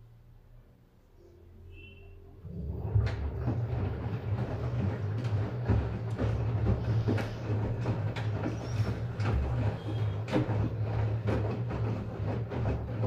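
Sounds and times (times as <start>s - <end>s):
washing machine motor humming: 1.2s - 13.0s
soft thuds of tumbling laundry: 2.8s - 13.0s.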